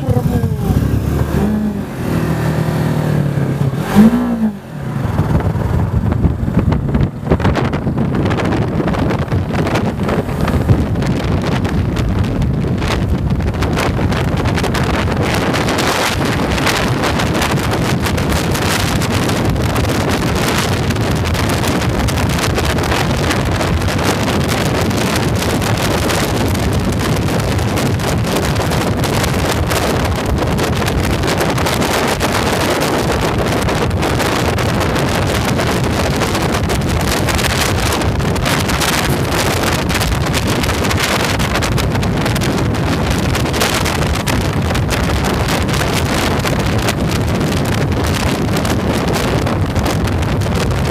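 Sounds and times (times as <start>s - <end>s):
motorcycle engine: 0.0s - 50.9s
road noise: 0.0s - 50.9s
wind rushing over microphone: 0.0s - 50.9s.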